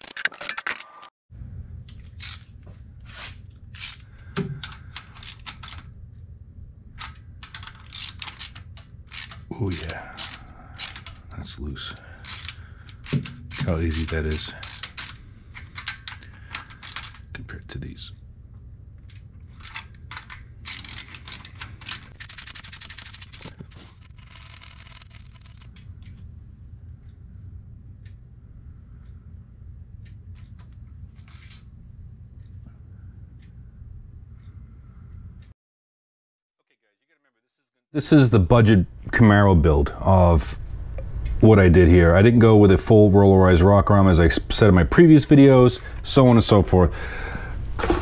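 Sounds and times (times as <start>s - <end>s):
low hum: 0.1s - 35.5s, 38.0s - 48.0s
metallic clicks of engine parts: 7.0s - 17.4s, 19.0s - 26.2s.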